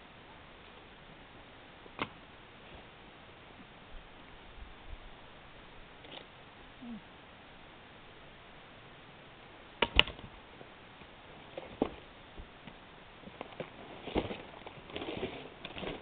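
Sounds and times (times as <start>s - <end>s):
rustling: 10.2s - 16.0s.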